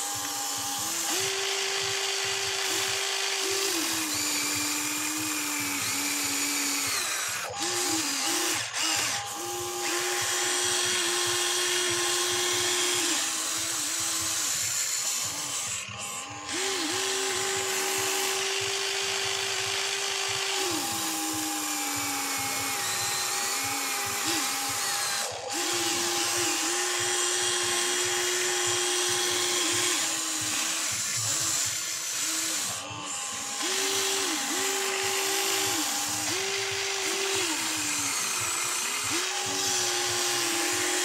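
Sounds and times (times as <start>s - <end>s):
electric gear motors whining: 0.0s - 41.0s.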